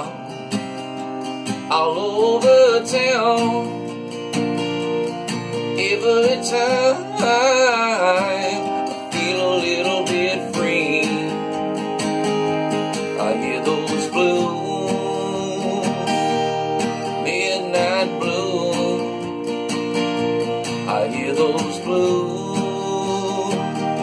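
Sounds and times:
acoustic guitar strummed: 0:00.0 - 0:24.0
man crooning wordlessly: 0:05.8 - 0:11.6, 0:13.1 - 0:16.5, 0:17.1 - 0:19.4, 0:20.9 - 0:24.0.

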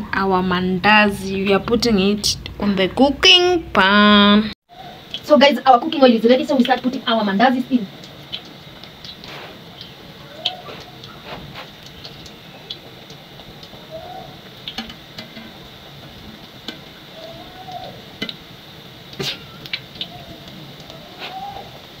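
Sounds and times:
dough frying in oil sizzling: 0:04.6 - 0:22.0
wire skimmer clicking against pot: 0:14.6 - 0:15.6.

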